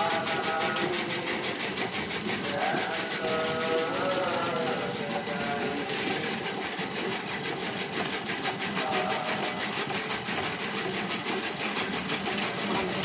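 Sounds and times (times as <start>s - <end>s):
chaff cutter clattering: 0.0s - 13.0s.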